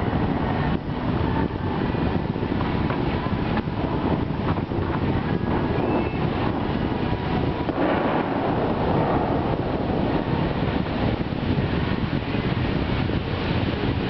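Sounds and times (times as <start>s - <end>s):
steady rushing noise: 0.0s - 14.0s
wind buffeting microphone: 0.0s - 14.0s.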